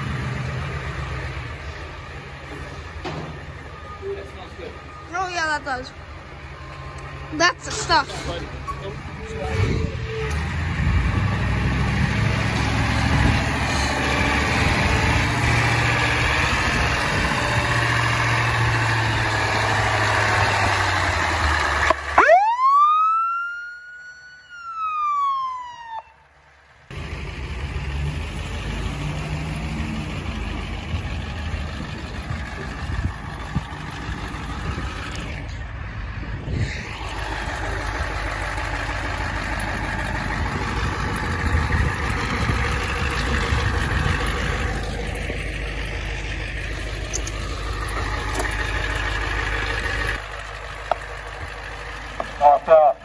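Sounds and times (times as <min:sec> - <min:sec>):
ambulance engines running: 0:00.0 - 0:53.0
siren winding up and down: 0:21.9 - 0:26.2.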